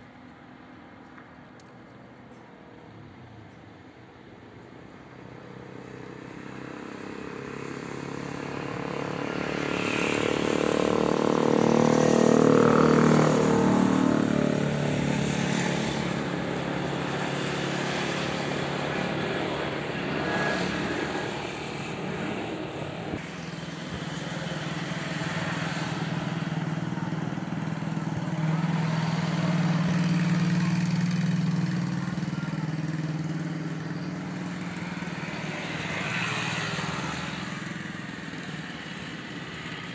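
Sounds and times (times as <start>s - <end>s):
jet engine roar: 8.4s - 30.0s.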